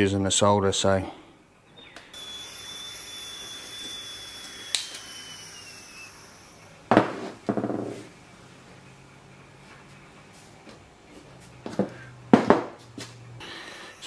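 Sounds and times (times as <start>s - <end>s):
solder hissing with high whistle: 2.1s - 6.9s, 13.4s - 14.0s.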